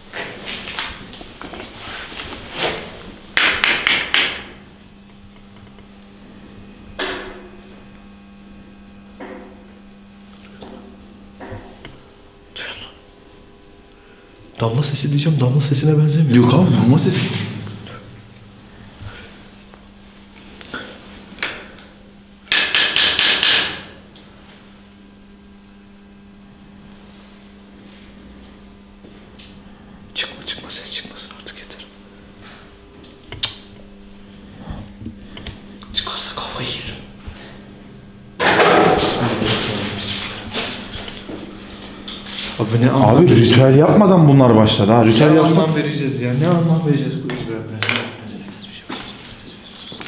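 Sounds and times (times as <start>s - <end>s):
knocking on wall: 3.4s - 4.5s, 22.5s - 23.9s
loud knocks: 22.5s - 24.0s, 38.4s - 39.6s.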